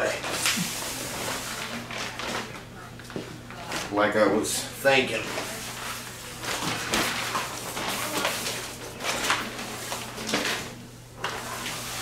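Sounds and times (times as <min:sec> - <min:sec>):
nylon rustling on tile floor: 0:00.0 - 0:04.0, 0:04.9 - 0:12.0.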